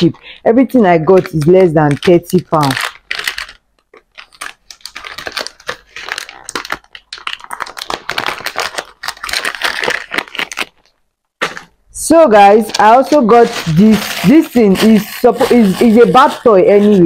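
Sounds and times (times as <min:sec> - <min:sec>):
plastic packaging crinkling: 0:00.0 - 0:17.0.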